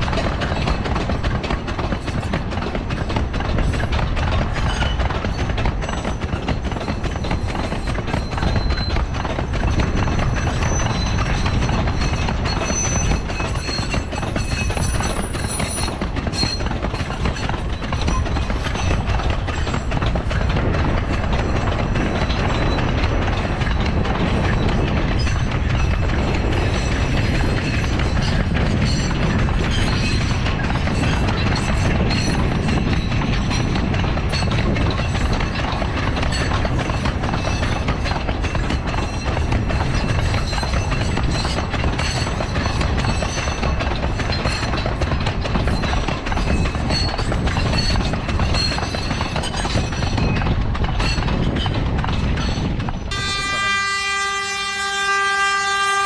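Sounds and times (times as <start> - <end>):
train wagons rumbling: 0.0 - 56.0
wheels clattering over rail joints: 0.0 - 56.0
high wheel squeals: 6.8 - 19.0.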